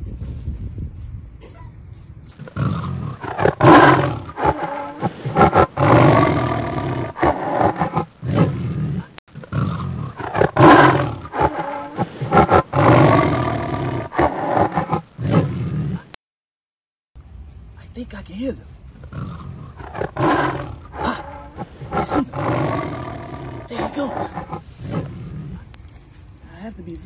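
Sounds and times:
wild animals roaring: 0:02.4 - 0:16.2, 0:19.0 - 0:25.8.

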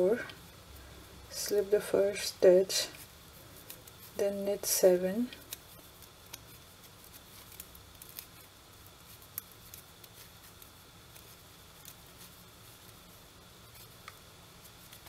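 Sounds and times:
low steady hum: 0:00.0 - 0:15.0
knitting needles clicking: 0:05.3 - 0:12.0.

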